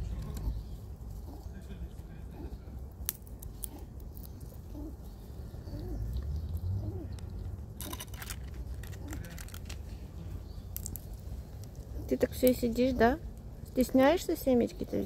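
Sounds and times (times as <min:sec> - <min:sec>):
pigeon cooing softly: 0:00.0 - 0:02.8, 0:04.5 - 0:07.4
sharp clicks and scratches: 0:06.3 - 0:10.0.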